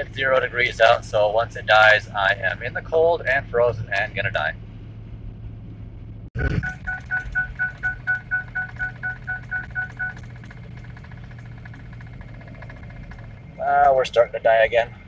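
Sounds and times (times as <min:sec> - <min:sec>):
low engine drone: 0:00.0 - 0:15.0
dashboard warning chime beeping: 0:06.4 - 0:10.6.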